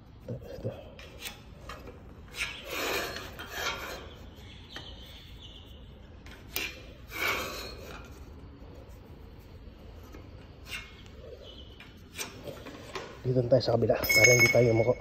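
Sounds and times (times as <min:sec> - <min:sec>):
scraping and rubbing strokes: 0:06.4 - 0:12.9.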